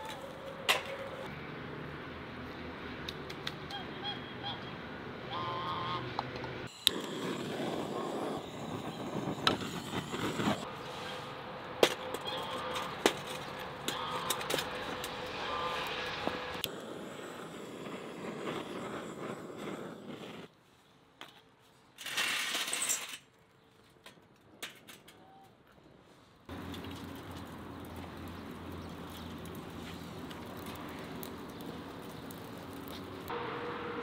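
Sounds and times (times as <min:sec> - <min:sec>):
geese honking: 0:03.8 - 0:06.1, 0:12.2 - 0:12.8, 0:13.9 - 0:14.4, 0:15.4 - 0:15.9.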